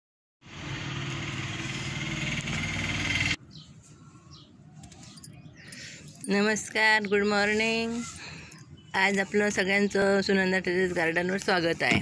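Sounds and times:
motor running: 0.5 - 3.4.

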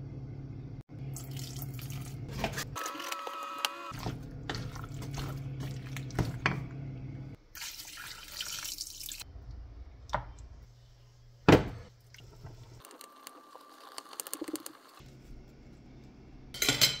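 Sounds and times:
low steady hum: 0.0 - 2.8, 3.7 - 7.4.

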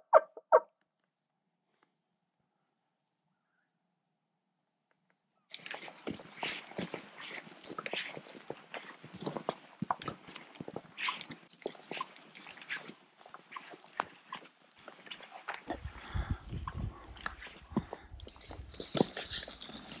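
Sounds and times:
footsteps on dirt trail with twigs: 5.5 - 20.0.

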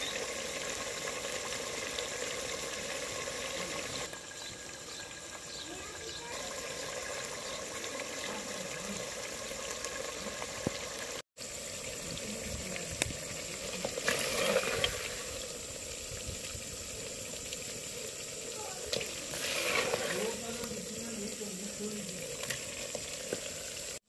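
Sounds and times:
meat sizzling in a pot: 0.0 - 24.0
wooden spoon stirring and scraping: 18.9 - 21.2.

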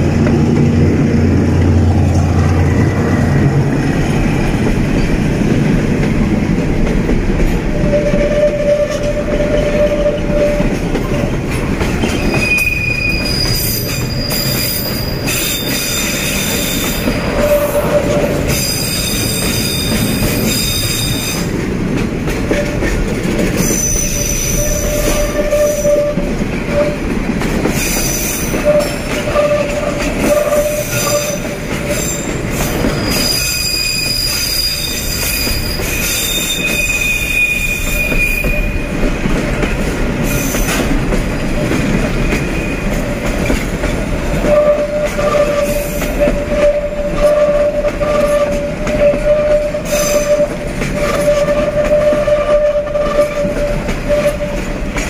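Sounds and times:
train wheels rumbling on rails: 0.0 - 55.0
high-pitched wheel squeal: 12.0 - 21.5, 23.6 - 27.0, 27.8 - 38.9, 44.4 - 54.6.

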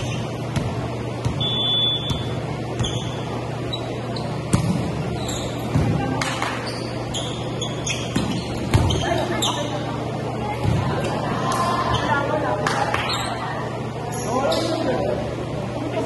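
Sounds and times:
sneakers squeaking on floor: 0.0 - 9.9, 12.9 - 13.5, 14.1 - 14.9
steady low hum: 0.0 - 16.0
volleyball struck with thuds: 0.5 - 3.1, 4.5 - 5.0, 5.7 - 6.6.

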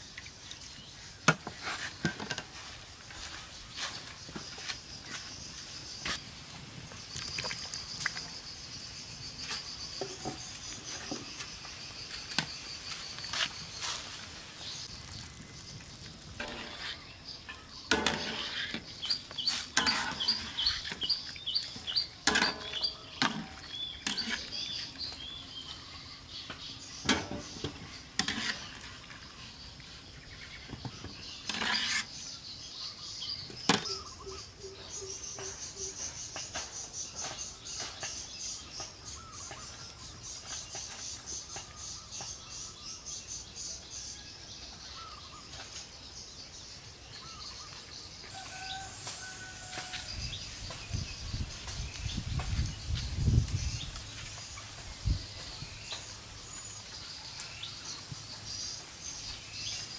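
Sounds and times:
bird chirping: 16.6 - 59.9.

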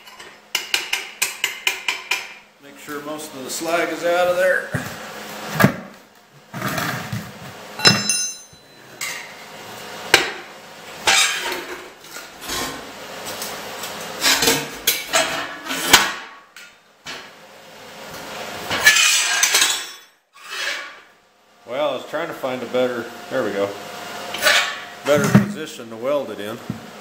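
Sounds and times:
scraping on steel: 20.4 - 21.1.

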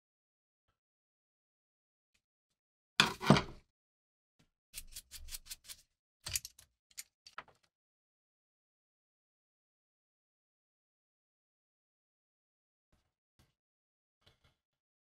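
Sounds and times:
small metal clicks: 6.2 - 7.7.

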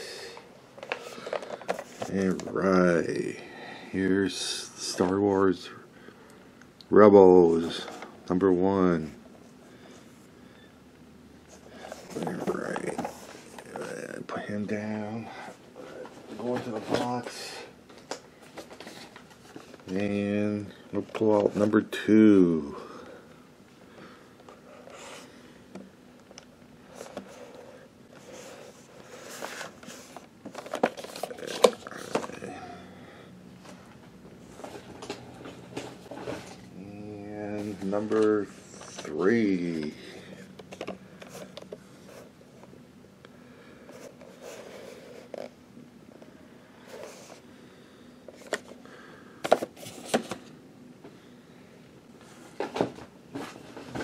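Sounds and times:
cardboard box rustling: 11.8 - 13.8, 28.2 - 32.3.

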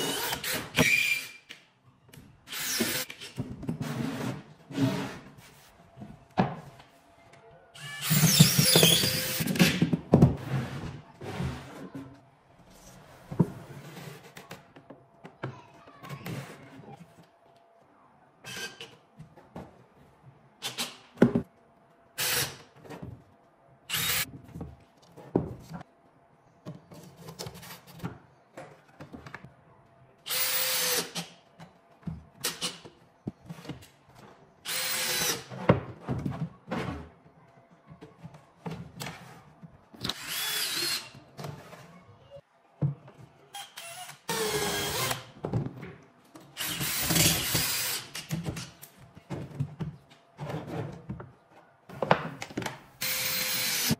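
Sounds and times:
cordless drill driving screws: 34.7 - 35.4, 43.7 - 45.2, 46.6 - 48.3, 53.0 - 53.9.

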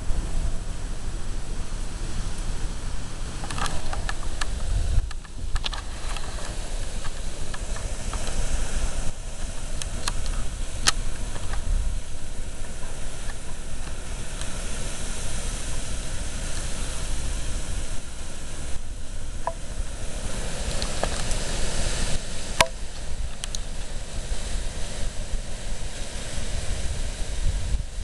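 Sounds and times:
gusty wind through trees: 0.0 - 28.0
rain hiss: 0.0 - 28.0.

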